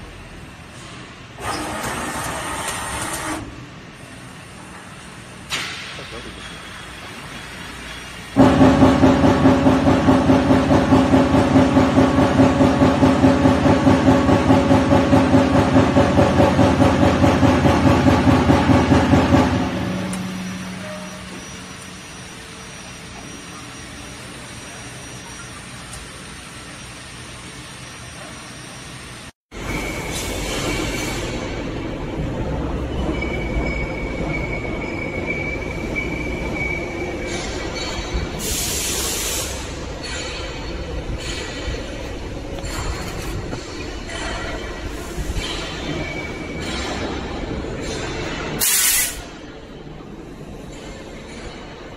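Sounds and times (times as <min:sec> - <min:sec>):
steady machine hum: 0:08.3 - 0:28.0
thin high whine: 0:19.5 - 0:28.8
burst of hiss: 0:38.4 - 0:39.7, 0:48.6 - 0:49.3.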